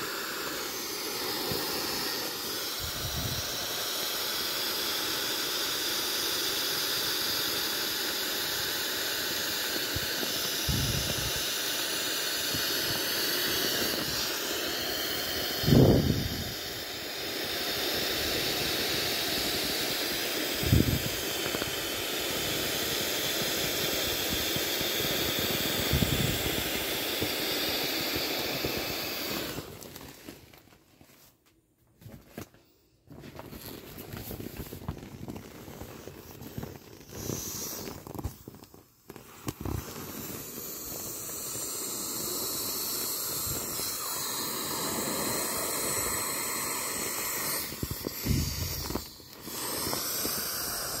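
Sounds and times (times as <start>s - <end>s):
air hissing from inflatable valve: 0.0s - 30.5s, 32.6s - 51.0s.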